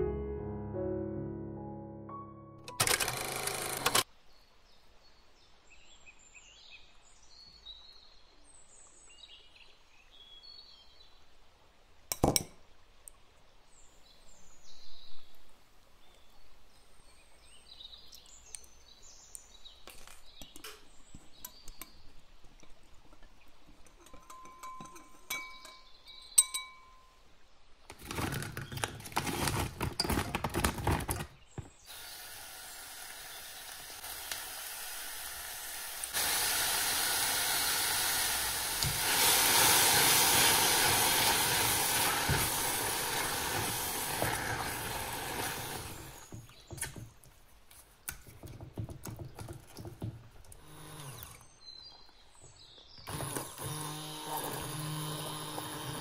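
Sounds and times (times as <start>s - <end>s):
scraping and handling sounds: 27.9s - 31.8s
sizzling and steam hiss: 31.8s - 46.4s.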